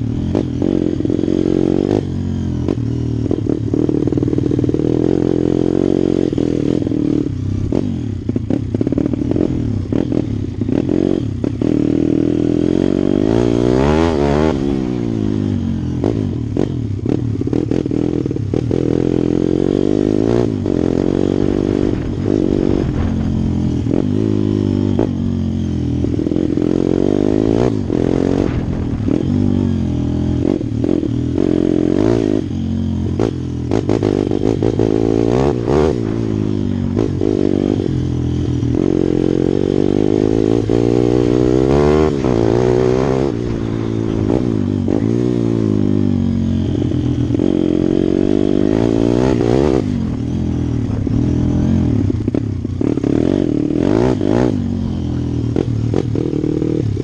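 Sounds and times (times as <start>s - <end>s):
motorbike engine revving: 0.0s - 57.0s
bike rattling over dirt: 21.2s - 24.3s.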